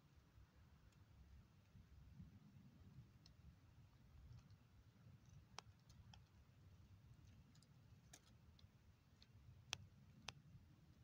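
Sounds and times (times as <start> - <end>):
low background rumble: 0.0 - 11.0
faint clicks: 7.2 - 11.0.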